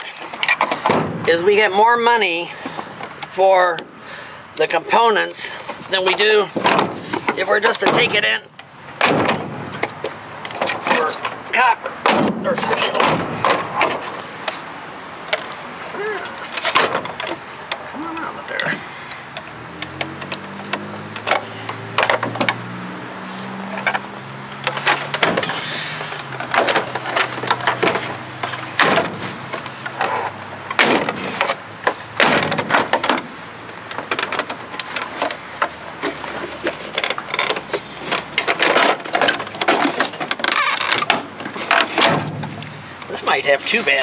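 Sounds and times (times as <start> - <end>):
clicks knocks and rattles: 5.7 - 14.6, 19.4 - 22.7, 24.6 - 43.1.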